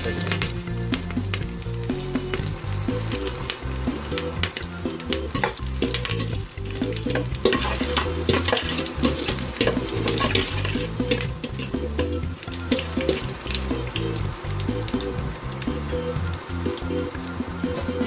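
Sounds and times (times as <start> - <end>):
hot oil sizzling and popping: 0.0 - 18.0
stirring in a pot: 2.4 - 15.8.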